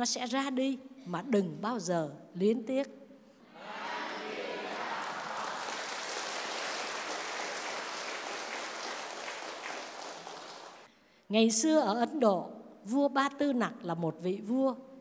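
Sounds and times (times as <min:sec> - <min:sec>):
congregation applauding: 0:03.6 - 0:10.9.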